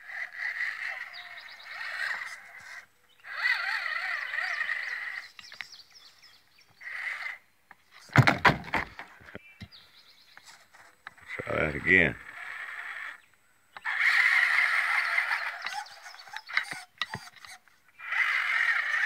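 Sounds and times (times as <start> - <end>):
electric motor whining: 0.0 - 5.7, 11.3 - 19.0
loud knocks and handling noise: 8.1 - 9.1.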